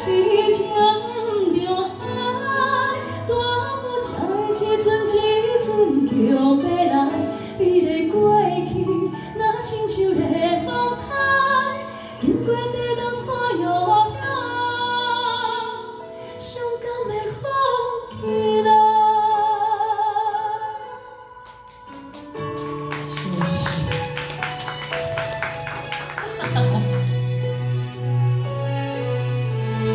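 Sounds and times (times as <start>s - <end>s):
women singing into microphones: 0.0s - 21.3s.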